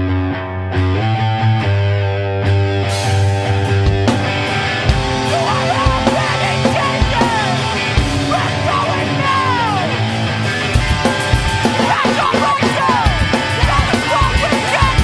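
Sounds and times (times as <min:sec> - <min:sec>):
punk rock guitar and drums: 0:00.0 - 0:15.0
person singing: 0:05.2 - 0:10.1, 0:11.6 - 0:15.0.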